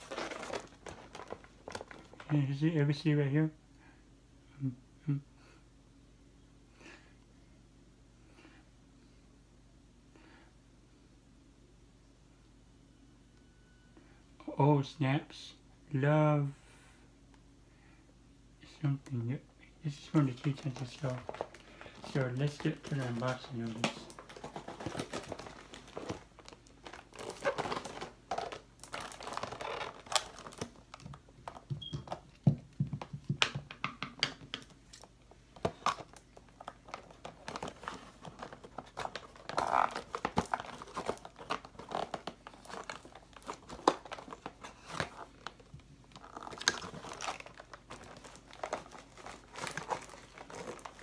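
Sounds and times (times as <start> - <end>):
packaging crinkling and tearing: 0.0 - 2.4, 19.9 - 32.2, 34.5 - 51.0.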